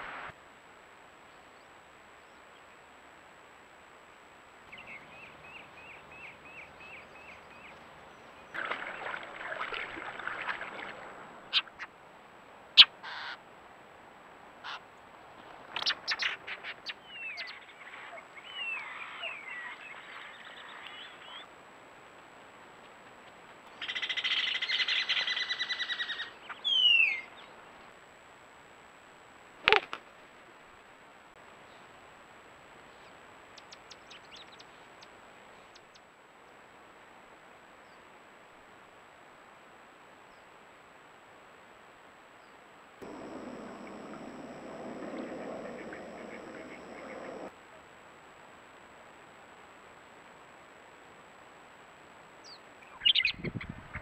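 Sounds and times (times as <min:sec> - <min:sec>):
run of high bird notes: 0:43.0 - 0:47.5.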